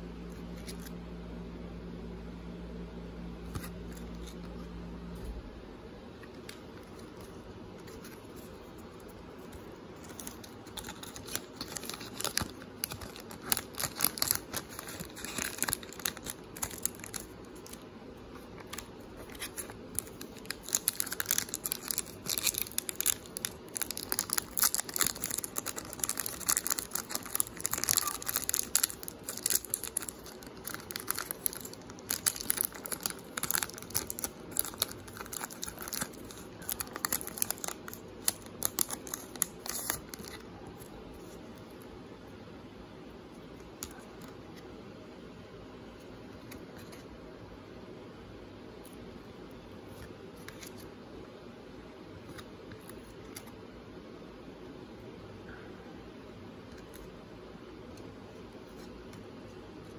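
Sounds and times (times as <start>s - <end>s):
wrappers tearing and crinkling: 10.0s - 17.8s, 18.6s - 40.5s.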